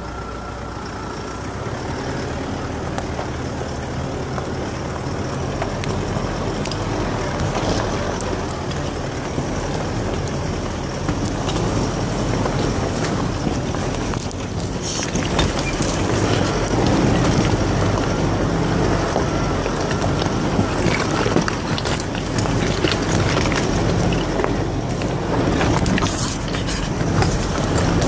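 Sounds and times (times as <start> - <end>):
vehicle engine running: 0.0 - 28.0
knocks and rattles: 5.6 - 28.0.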